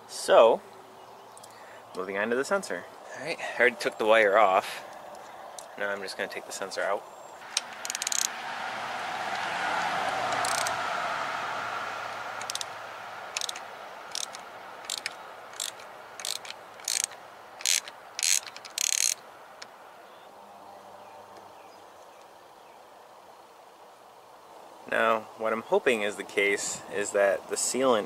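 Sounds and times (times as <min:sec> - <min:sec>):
ratchet wrench clicking: 0:07.5 - 0:08.3, 0:10.4 - 0:10.7, 0:12.4 - 0:12.7, 0:13.3 - 0:19.2.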